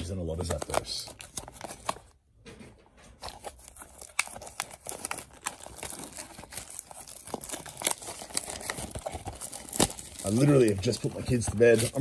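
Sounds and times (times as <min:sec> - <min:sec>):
foil wrapper crinkling and tearing: 0:03.2 - 0:12.0.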